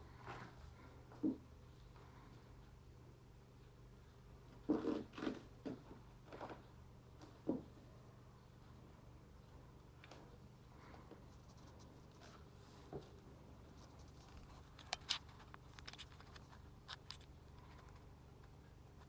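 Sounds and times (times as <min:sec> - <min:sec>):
steady low hum: 0:00.0 - 0:19.0
faint clicks and scratches: 0:08.6 - 0:19.0.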